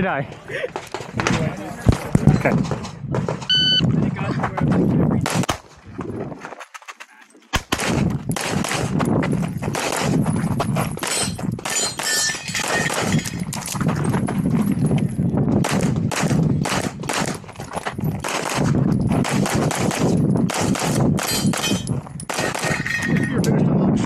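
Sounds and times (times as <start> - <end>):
pistol shots: 5.2 - 5.7, 7.5 - 9.0, 9.7 - 10.3, 11.0 - 13.2, 15.6 - 17.4, 18.2 - 22.8
steel targets ringing: 11.0 - 13.3.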